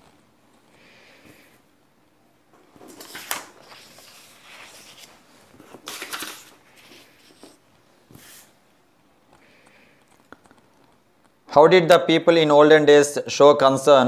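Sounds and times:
paper sheets rustling: 2.6s - 8.6s.

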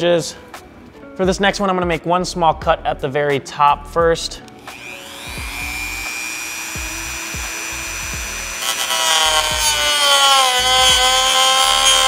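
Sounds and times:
rotary tool whining: 4.6s - 12.0s
cutoff wheel grinding plastic: 4.7s - 12.0s.

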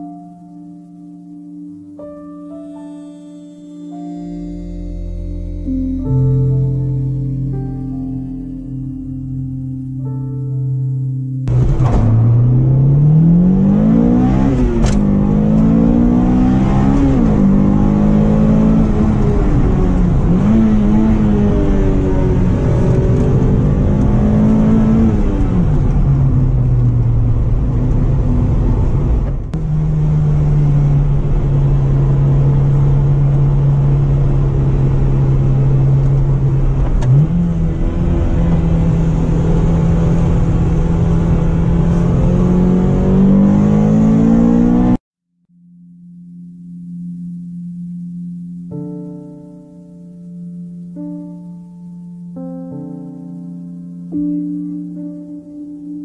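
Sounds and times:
car engine accelerating: 4.2s - 45.0s.

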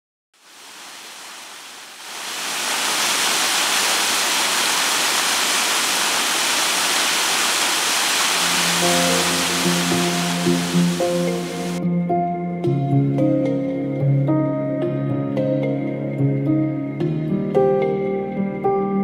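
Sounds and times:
waterfall rushing over rock: 0.4s - 11.8s.

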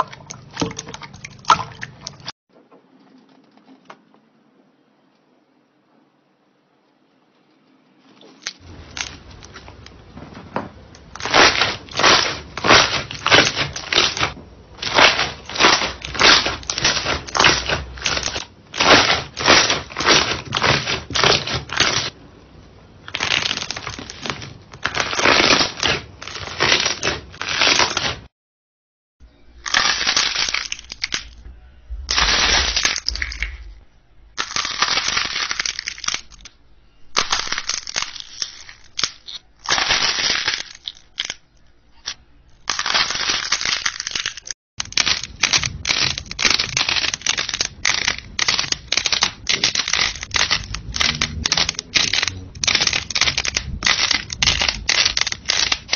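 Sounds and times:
slime crackling and popping: 8.3s - 10.2s, 10.8s - 22.2s, 23.0s - 28.3s, 29.6s - 33.7s, 34.4s - 36.5s, 37.1s - 55.9s.

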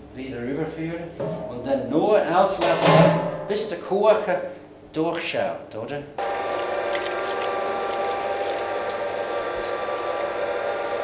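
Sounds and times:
machine humming with rattle: 6.2s - 11.0s.

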